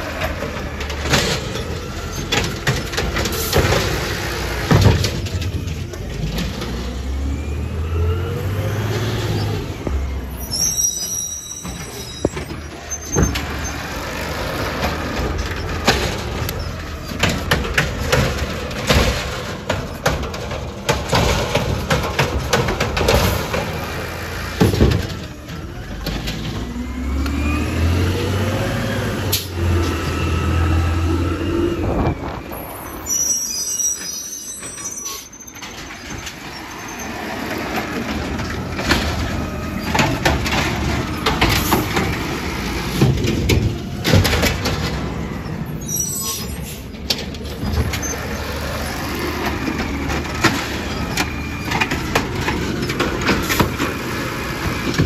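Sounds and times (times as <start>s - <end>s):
knocks and clatter: 0.0s - 6.8s, 11.6s - 26.7s, 37.5s - 45.3s, 49.2s - 55.0s
garbage truck engine revving: 0.0s - 33.1s, 35.8s - 55.0s.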